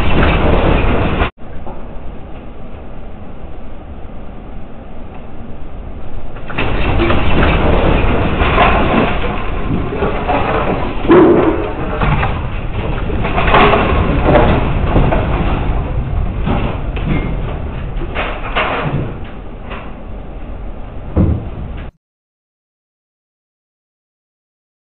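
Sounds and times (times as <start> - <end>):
earthquake deep rumble: 0.0 - 22.0
fixtures rattling and clattering: 6.5 - 19.9.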